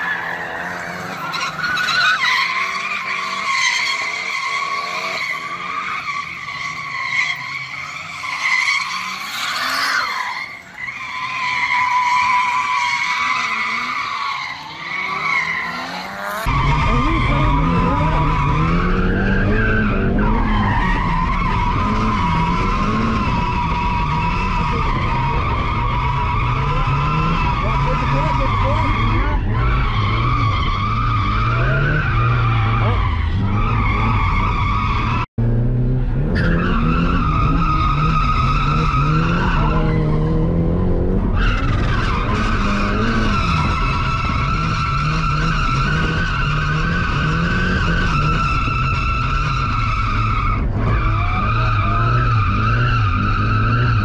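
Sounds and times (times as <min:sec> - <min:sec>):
car engine revving: 0:00.0 - 0:54.0.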